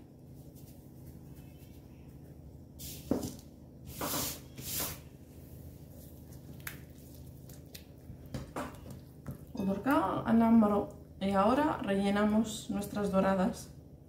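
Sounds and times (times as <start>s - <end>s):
hissing rustles of mixing: 0.2s - 9.2s.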